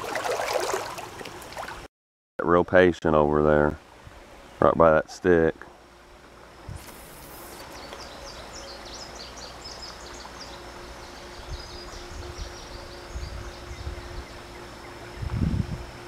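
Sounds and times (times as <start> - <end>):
high insect buzz: 6.4 - 16.0
small bird chirping: 7.5 - 15.4.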